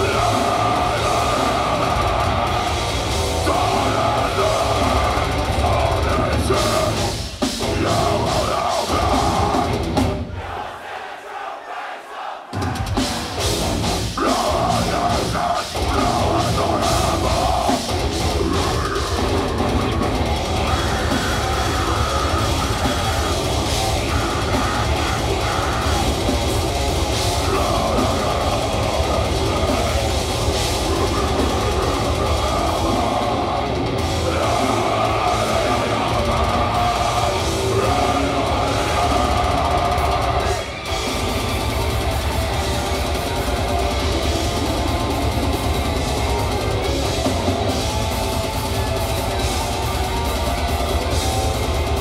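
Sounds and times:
deathcore band playing live: 0.0 - 10.8, 12.5 - 52.0
heavy distorted guitars: 0.0 - 11.4, 12.5 - 52.0
pounding drums: 0.0 - 52.0.

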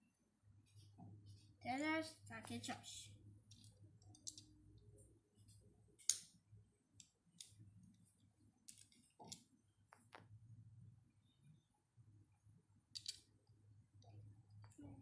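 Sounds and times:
plastic bricks clicking: 3.5 - 4.5, 6.0 - 6.4, 7.0 - 7.6, 8.6 - 10.2, 12.9 - 13.3.

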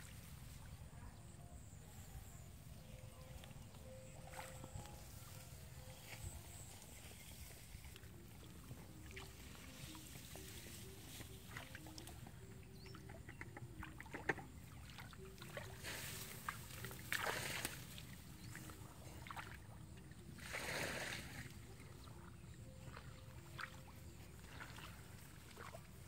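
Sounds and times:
water sloshing and splashing: 7.5 - 26.0.

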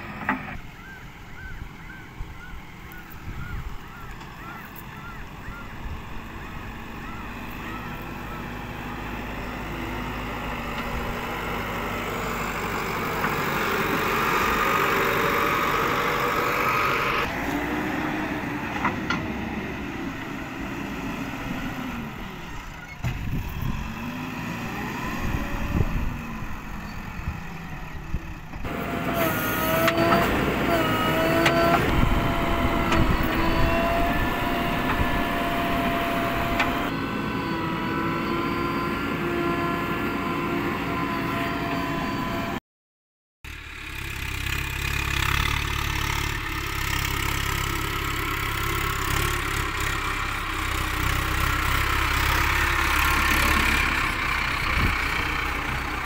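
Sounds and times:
diesel engine running: 0.0 - 42.6, 43.5 - 56.0
steady hydraulic whine: 28.6 - 42.6.

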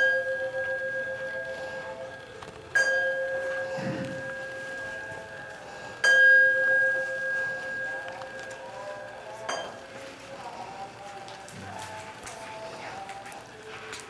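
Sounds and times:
bell ringing: 2.8 - 8.4.

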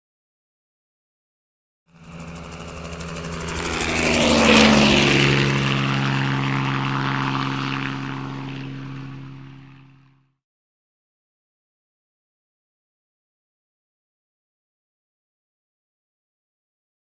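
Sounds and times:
propeller aircraft flying past: 1.9 - 10.3.

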